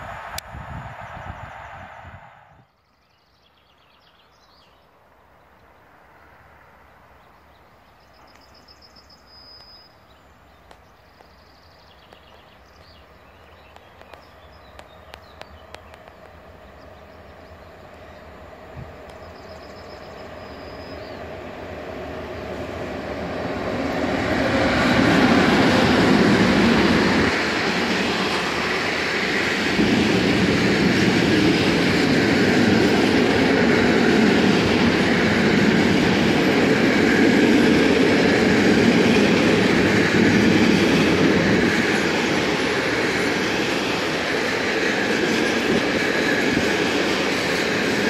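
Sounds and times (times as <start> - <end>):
loud rushing noise: 0.0 - 2.7
birds twittering: 7.2 - 22.7
freight train rumble: 10.5 - 48.0.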